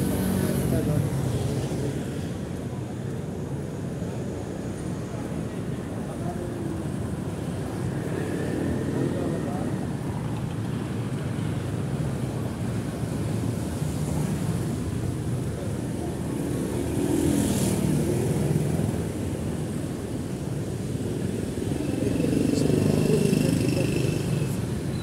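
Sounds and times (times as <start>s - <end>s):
scooters and motorcycles passing: 0.0s - 2.3s, 7.4s - 25.0s.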